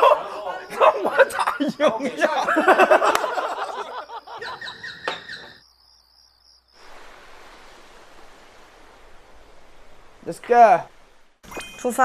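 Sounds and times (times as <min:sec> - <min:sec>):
voices and laughter: 0:00.0 - 0:04.8
night insects chirping: 0:00.0 - 0:12.0
outdoor ambient hiss: 0:00.0 - 0:12.0.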